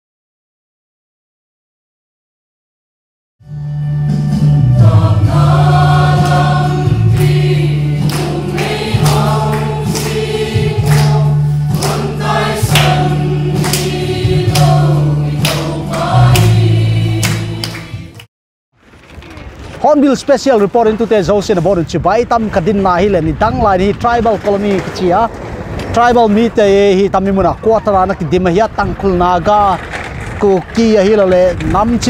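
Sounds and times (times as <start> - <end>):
held low notes: 4.1 - 18.2
choir singing a hymn: 4.5 - 18.2
steady beat: 4.8 - 18.2.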